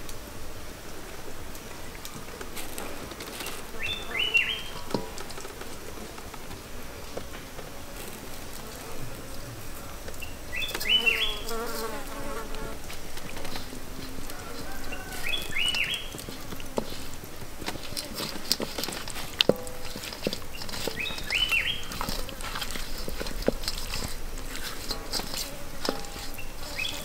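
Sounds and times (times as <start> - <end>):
hands mixing food in a wok: 1.7 - 27.0
wavering insect buzz: 7.8 - 19.2.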